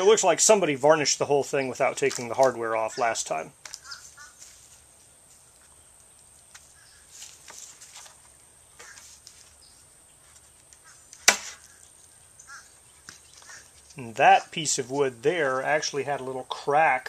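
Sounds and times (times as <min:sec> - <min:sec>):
faint handling noises: 0:01.8 - 0:12.1, 0:13.0 - 0:15.9
sharp wooden crack: 0:11.1 - 0:11.8.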